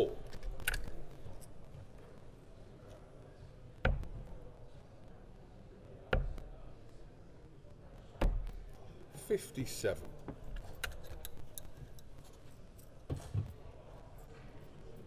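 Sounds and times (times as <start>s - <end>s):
darts striking dartboard: 6.1s - 6.4s.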